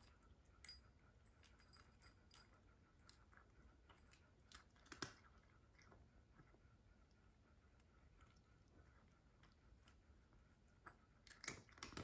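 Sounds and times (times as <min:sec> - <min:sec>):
cat crunching dry food: 0:03.0 - 0:06.0.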